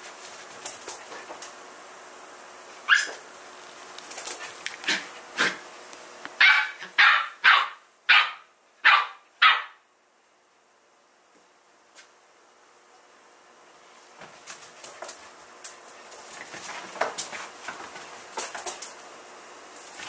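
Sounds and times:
dog barking: 0:02.9 - 0:03.2, 0:06.4 - 0:09.8.

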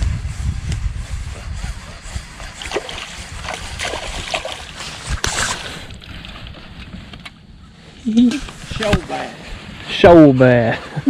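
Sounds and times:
fish thrashing and splashing: 0:02.4 - 0:06.3.

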